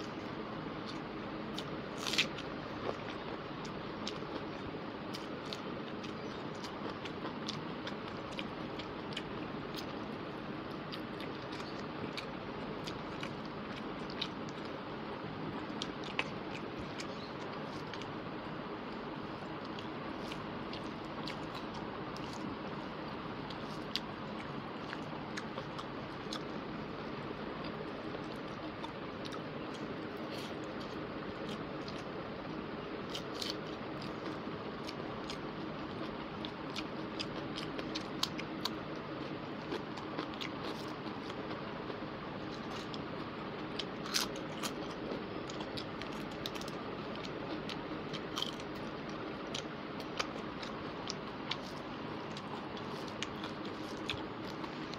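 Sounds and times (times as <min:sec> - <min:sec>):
person chewing food: 0:00.0 - 0:54.9.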